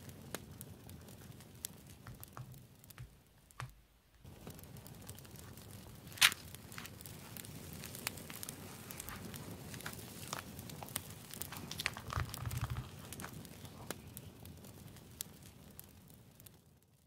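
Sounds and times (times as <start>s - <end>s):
small taps and clicks: 1.9s - 3.8s.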